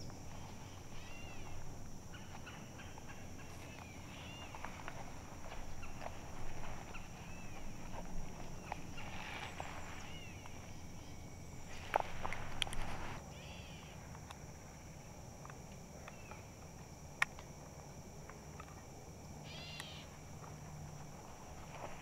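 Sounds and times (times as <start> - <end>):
rustling in dry brush: 0.0 - 13.2, 20.1 - 22.0
birds chirping: 0.0 - 13.9
steady high hiss: 0.0 - 17.2.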